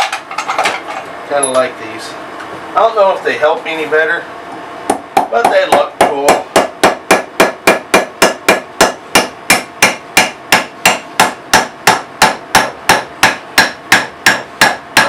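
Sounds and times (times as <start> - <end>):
hammer striking wedge: 4.9 - 15.0.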